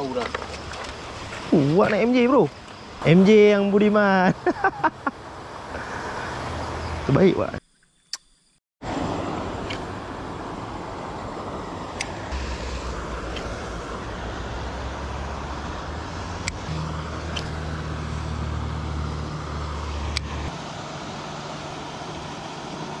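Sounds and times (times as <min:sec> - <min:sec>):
outdoor background noise: 0:00.0 - 0:23.0
low motor hum: 0:08.9 - 0:23.0
sharp clicks: 0:13.3 - 0:13.6, 0:17.3 - 0:17.6.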